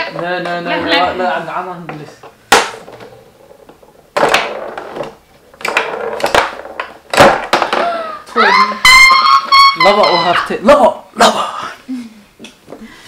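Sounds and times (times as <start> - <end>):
foosball rods clattering: 0.0 - 8.0
ball clacking on wooden players: 1.8 - 8.0.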